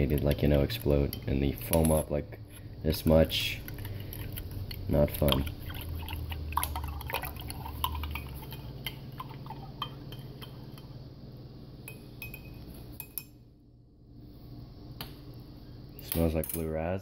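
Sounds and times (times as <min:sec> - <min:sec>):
low steady hum: 0:00.0 - 0:17.0
spoon clinking against glass: 0:11.9 - 0:13.4.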